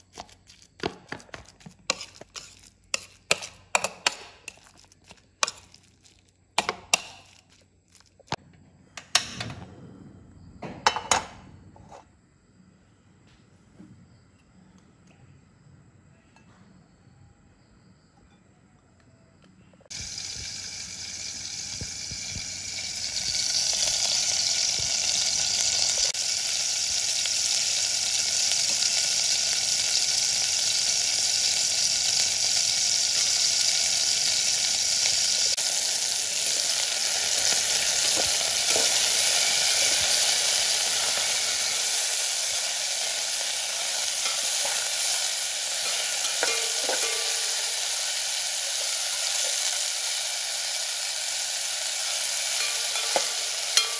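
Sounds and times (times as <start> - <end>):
meatballs sizzling in oil: 0.0 - 8.4, 19.9 - 53.9.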